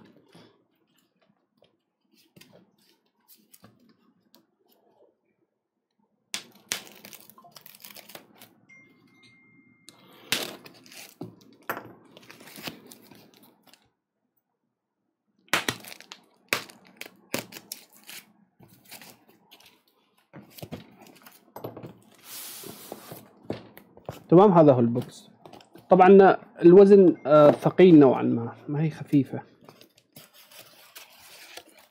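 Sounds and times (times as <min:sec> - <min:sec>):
tape tearing: 0:06.4 - 0:08.5, 0:10.4 - 0:11.3, 0:12.2 - 0:13.8, 0:15.6 - 0:19.8, 0:29.8 - 0:31.9.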